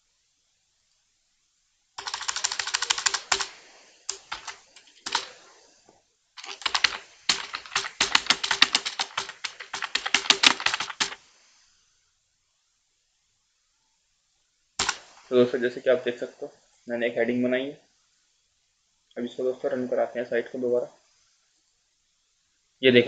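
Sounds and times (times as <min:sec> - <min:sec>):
typing on computer keyboard: 0:02.0 - 0:05.4, 0:06.4 - 0:11.2.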